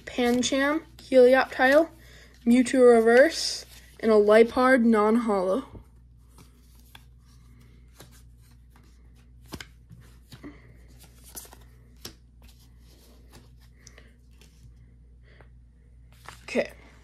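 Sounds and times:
low steady hum: 0:00.0 - 0:17.0
cards clicking and rustling: 0:06.2 - 0:14.7.

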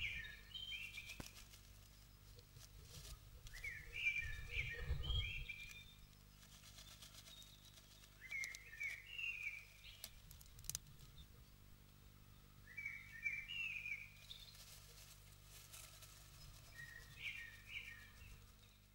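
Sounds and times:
songbird chirping: 0:00.0 - 0:18.9
soft low rustle: 0:00.8 - 0:11.2, 0:14.2 - 0:18.9
faint clicks: 0:07.4 - 0:11.2.

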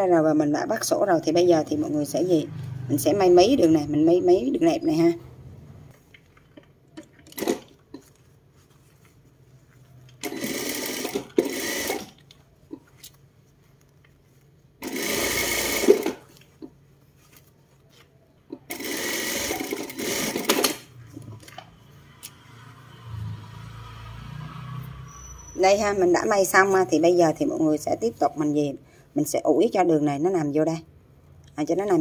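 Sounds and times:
sewing machine stitching: 0:07.2 - 0:07.8, 0:10.2 - 0:12.2, 0:14.8 - 0:16.3, 0:18.7 - 0:20.9.

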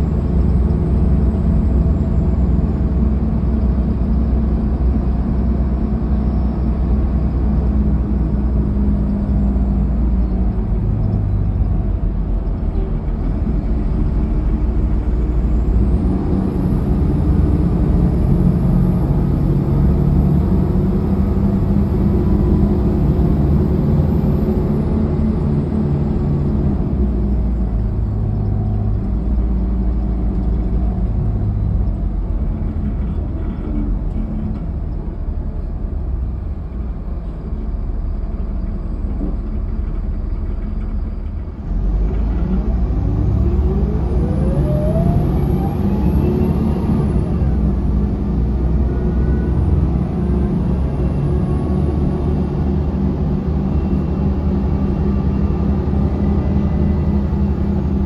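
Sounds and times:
bus engine: 0:00.0 - 0:58.0
road rumble: 0:00.0 - 0:58.0
transmission whine: 0:42.9 - 0:48.1.

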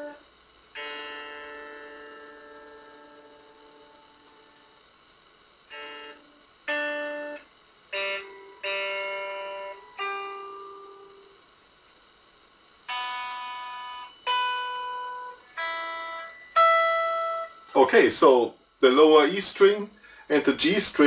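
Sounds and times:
electric guitar single notes: 0:00.8 - 0:04.8, 0:05.7 - 0:11.4, 0:12.9 - 0:17.8.

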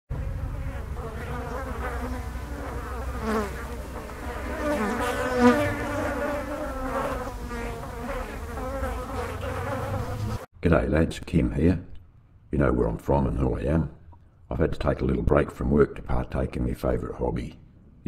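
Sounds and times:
low steady rumble: 0:00.1 - 0:03.0
blowflies buzzing: 0:00.1 - 0:10.5.

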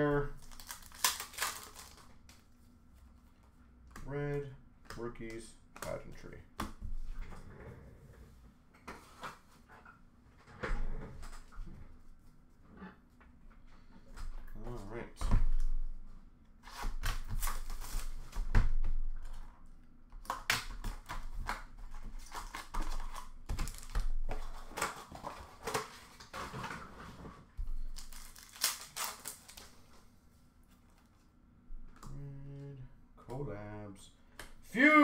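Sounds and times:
wrappers crinkling and tearing: 0:00.3 - 0:02.2, 0:17.1 - 0:18.4, 0:21.9 - 0:26.3, 0:27.8 - 0:30.0
cards shuffled and tapped: 0:04.8 - 0:07.2, 0:20.2 - 0:26.4.

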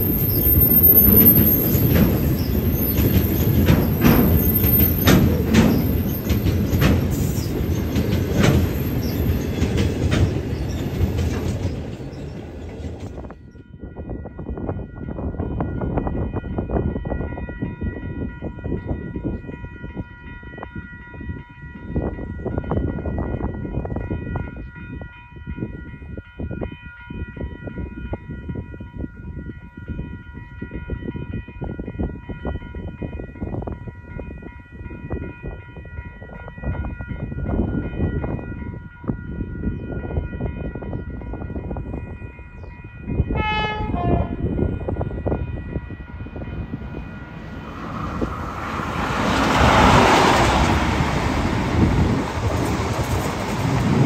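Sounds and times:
steady high ringing tones: 0:00.0 - 0:05.1
diesel train approaching: 0:00.0 - 0:54.0
wind buffeting microphone: 0:00.0 - 0:54.0
train horn: 0:43.2 - 0:46.2.

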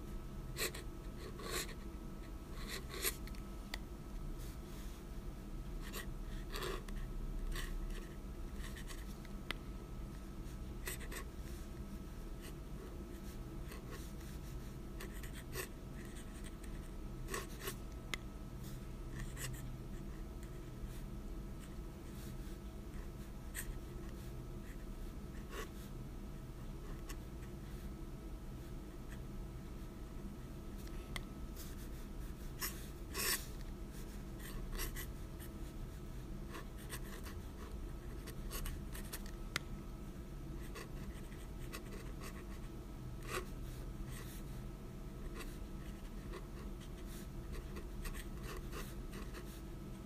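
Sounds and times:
pen nib scratching paper: 0:45.2 - 0:49.6.

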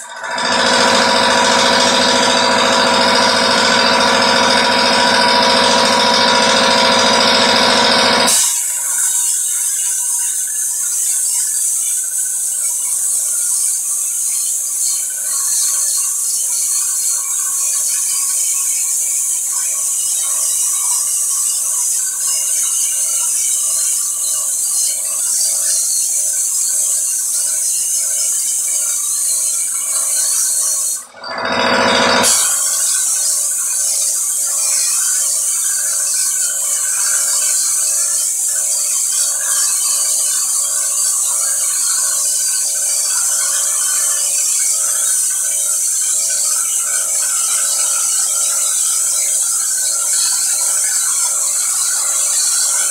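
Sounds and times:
sandblasting gun hissing: 0:08.3 - 0:17.1, 0:21.5 - 0:31.0, 0:32.2 - 0:52.9.

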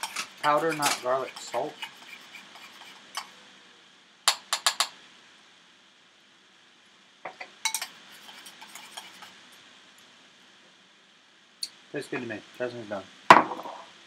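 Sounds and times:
spoon clinking ceramic bowl: 0:07.7 - 0:08.0.

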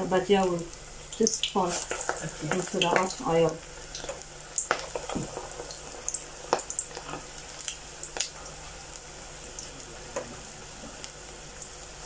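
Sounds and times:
fritters sizzling in hot oil: 0:00.0 - 0:12.0
oil popping and crackling: 0:00.4 - 0:10.3.

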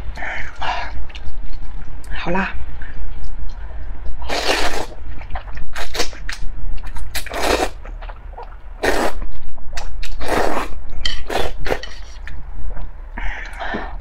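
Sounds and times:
slurping noodles: 0:04.3 - 0:05.0, 0:07.2 - 0:07.8, 0:08.8 - 0:09.2, 0:10.1 - 0:12.2.

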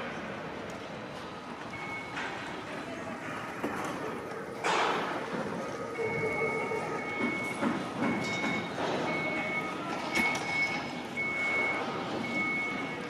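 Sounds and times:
city street noise: 0:00.0 - 0:13.0
vehicle warning beeper: 0:01.7 - 0:02.4, 0:05.6 - 0:13.0.

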